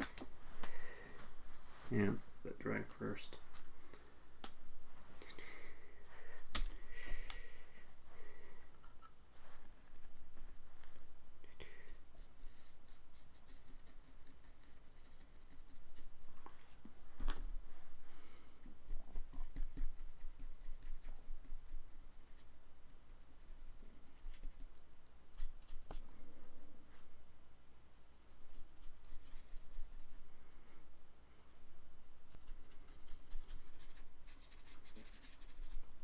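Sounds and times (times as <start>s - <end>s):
drawing tool scratching on paper: 12.2s - 16.1s.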